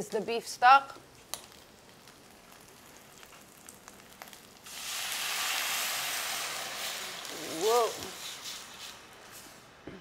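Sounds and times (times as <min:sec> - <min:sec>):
vegetables crackling in a pan: 0:00.0 - 0:09.8
stock sizzling in a hot pan: 0:01.1 - 0:09.8.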